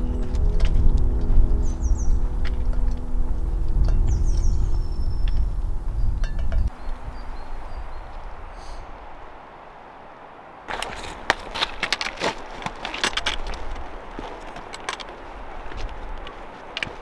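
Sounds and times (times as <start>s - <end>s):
low rumble: 0.0s - 9.1s.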